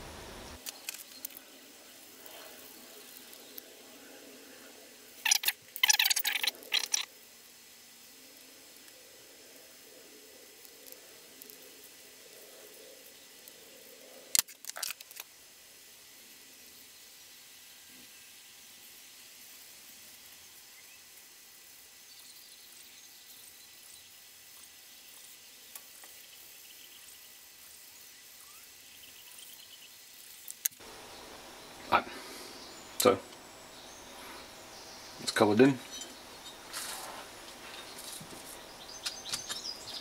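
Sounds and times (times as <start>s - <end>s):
steady hiss: 0.0s - 40.0s.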